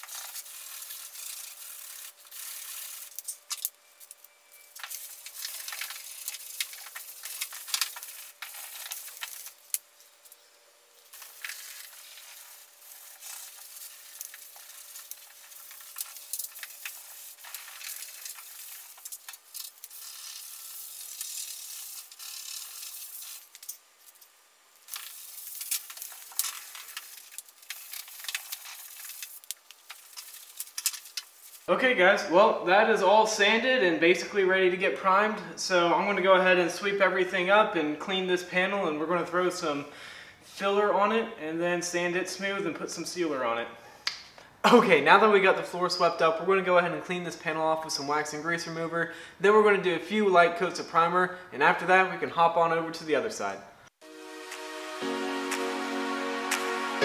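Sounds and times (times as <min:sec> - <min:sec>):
sandpaper scraping on filler: 0:00.0 - 0:03.2, 0:11.2 - 0:19.2.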